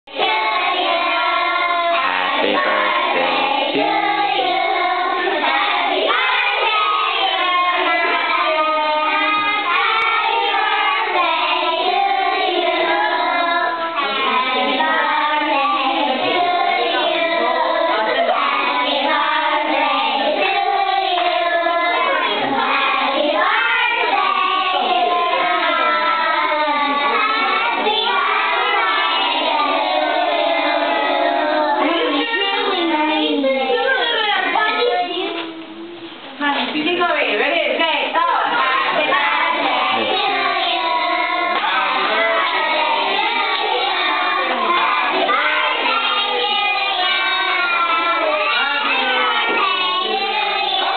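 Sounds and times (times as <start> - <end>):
young children singing: 0.1 - 36.2, 38.5 - 50.9.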